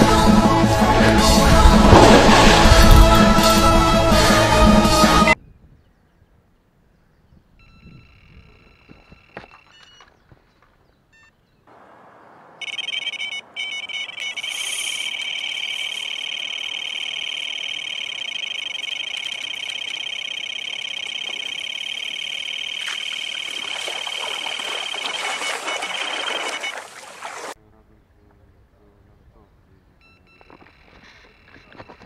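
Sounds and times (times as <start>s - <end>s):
rushing noise: 0.4s - 4.5s
bite alarm high tone: 12.6s - 26.9s.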